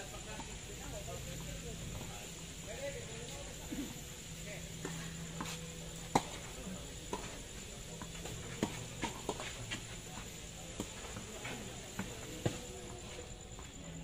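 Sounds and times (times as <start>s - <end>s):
tennis racket hitting ball: 4.8s - 6.4s
ball bouncing: 6.1s - 6.4s.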